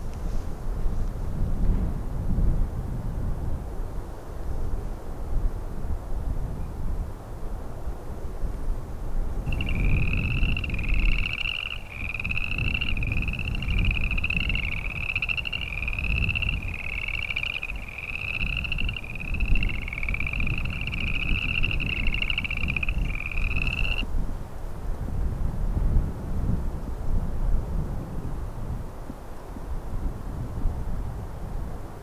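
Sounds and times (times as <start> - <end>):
wind rumble on microphone: 0.0 - 32.0
frogs calling with rattling trills: 9.5 - 24.0.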